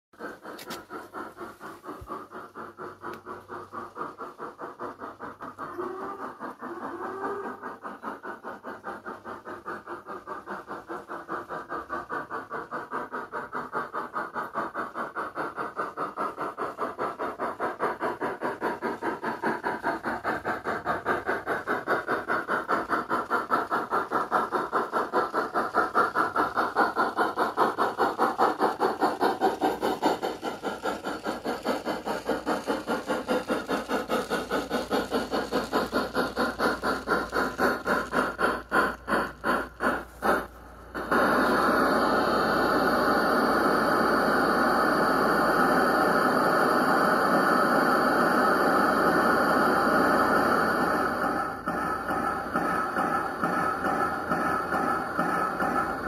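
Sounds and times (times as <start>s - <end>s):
model steam locomotive chuffing: 0.2s - 56.0s.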